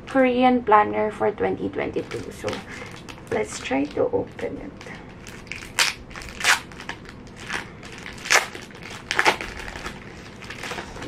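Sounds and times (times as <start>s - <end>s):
plastic wrapping crinkling: 1.7s - 11.0s.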